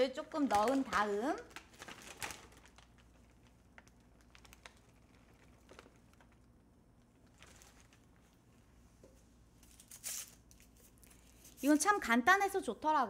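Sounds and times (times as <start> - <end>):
plastic bag crinkling: 0.2 - 8.4.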